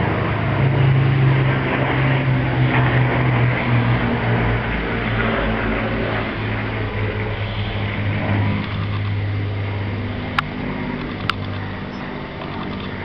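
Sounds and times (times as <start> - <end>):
piston aircraft engines droning: 0.0 - 13.0
sharp clicks: 8.5 - 9.2, 10.3 - 13.0.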